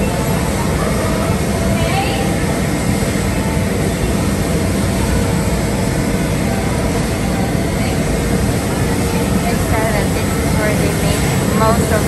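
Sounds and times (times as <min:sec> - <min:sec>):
roasting machinery running: 0:00.0 - 0:12.0.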